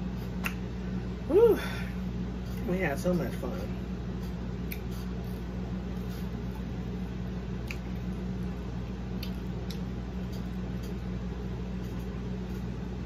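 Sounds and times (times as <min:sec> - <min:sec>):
steady low hum: 0:00.0 - 0:13.0
chewing and wet squishing: 0:04.3 - 0:12.7.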